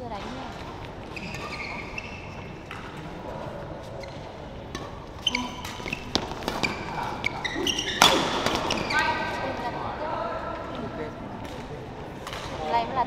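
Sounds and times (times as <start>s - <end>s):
shoes squeaking on floor: 0.0s - 9.7s
indoor hall noise: 0.0s - 13.0s
racket hitting shuttlecock: 4.1s - 9.0s.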